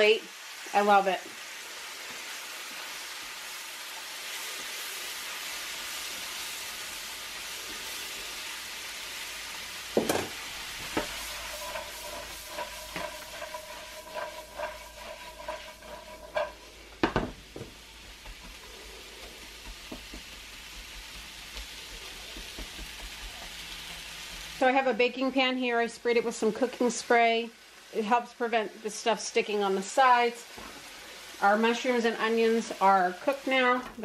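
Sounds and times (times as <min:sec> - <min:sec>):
vegetables sizzling in a pan: 0:00.0 - 0:34.0
spatula knocking on pan: 0:09.9 - 0:23.6
spatula scraping a pan: 0:09.9 - 0:24.6.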